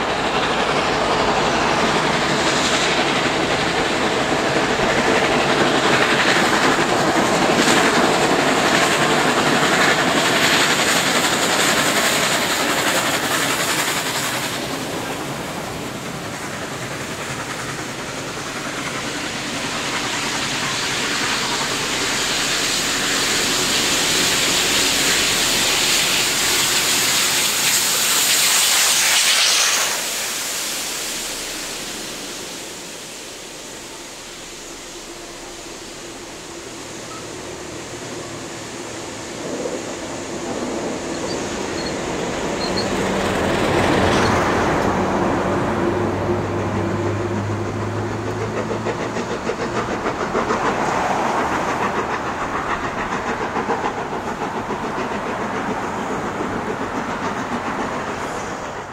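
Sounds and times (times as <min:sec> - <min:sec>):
steam locomotive exhaust and hiss: 0:00.0 - 0:58.9
wheels clattering on rail: 0:36.6 - 0:58.9.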